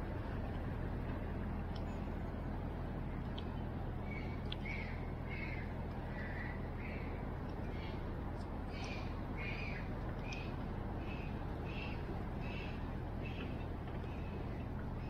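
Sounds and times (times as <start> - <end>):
steady low hum: 0.0 - 15.0
bird calling: 4.0 - 8.1, 8.7 - 15.0.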